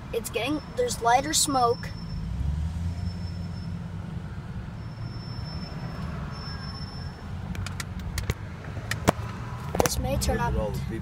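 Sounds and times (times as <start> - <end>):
vehicle engines rumbling: 0.0 - 11.0
sharp clicks: 7.5 - 9.9.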